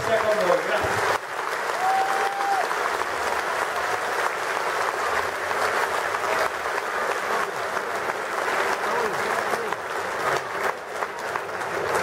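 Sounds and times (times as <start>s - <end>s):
crowd applauding: 0.0s - 12.0s.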